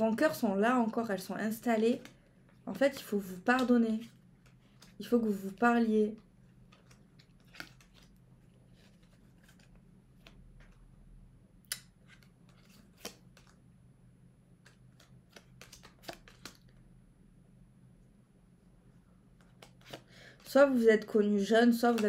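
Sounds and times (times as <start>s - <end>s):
cards flicking and clicking: 1.6s - 5.6s, 6.6s - 8.2s, 11.6s - 13.6s, 14.6s - 16.8s, 19.4s - 20.5s, 21.8s - 22.0s.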